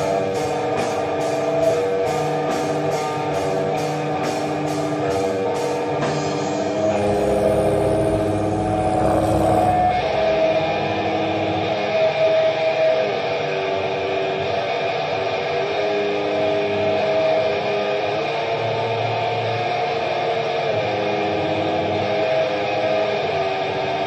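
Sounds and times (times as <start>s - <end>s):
distorted guitar noise: 6.7s - 11.6s.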